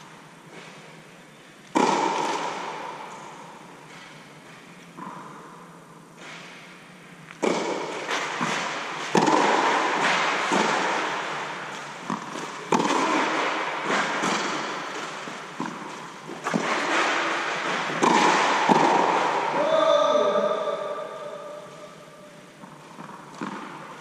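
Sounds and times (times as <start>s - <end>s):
tennis ball bouncing: 1.6s - 4.0s, 7.4s - 19.6s, 22.6s - 24.0s
tennis ball hit by racket: 1.7s - 3.5s, 7.4s - 19.7s, 22.6s - 23.9s.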